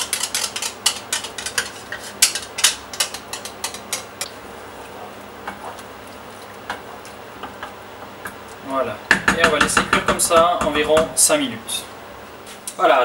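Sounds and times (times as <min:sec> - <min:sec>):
wooden spoon scraping a pan: 0:00.0 - 0:07.2.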